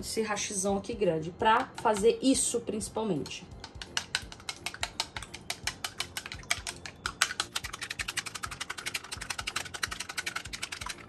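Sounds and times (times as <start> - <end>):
chopsticks clicking against jug: 3.2 - 11.0.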